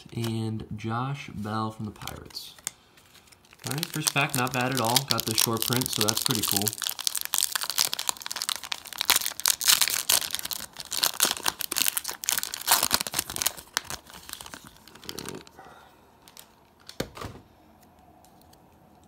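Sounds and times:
foil wrapper crinkling and tearing: 0:02.0 - 0:15.6, 0:16.2 - 0:16.9.

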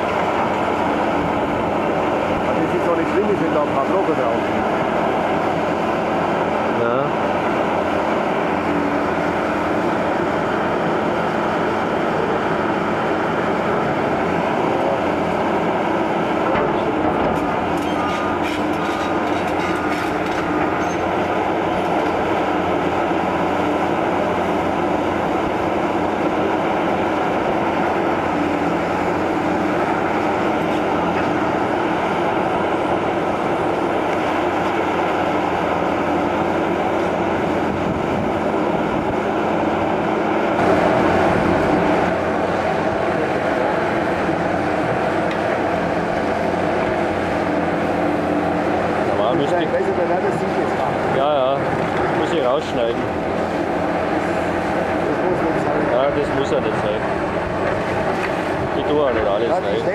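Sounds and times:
excavator engine and hydraulics: 0:00.0 - 0:59.9
masonry clattering and grinding: 0:16.4 - 0:21.2.

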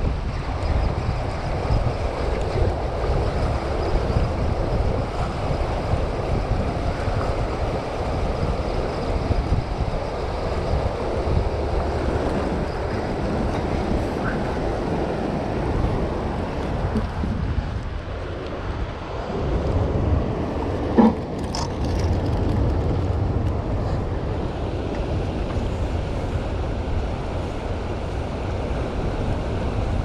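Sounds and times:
water churning below dam: 0:00.0 - 0:30.0
wind buffeting microphone: 0:00.0 - 0:30.0.

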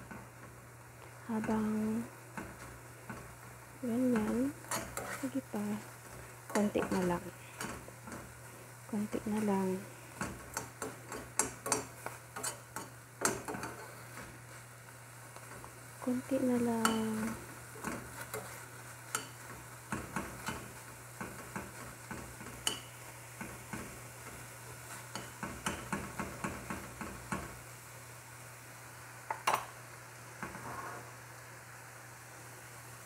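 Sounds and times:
light sizzle of frying: 0:00.0 - 0:33.0
metal spoon scraping a frying pan: 0:04.2 - 0:08.5, 0:10.1 - 0:14.6, 0:16.8 - 0:23.0.

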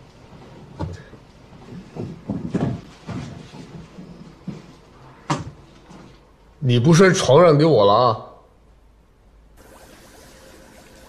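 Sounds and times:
soft knocks and rustling: 0:00.3 - 0:06.3.

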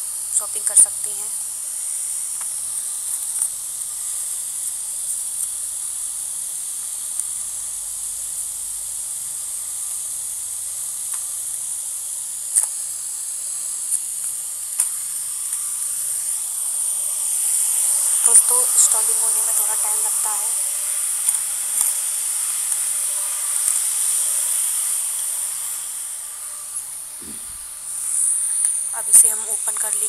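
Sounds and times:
high-pitched hiss: 0:12.2 - 0:30.0.

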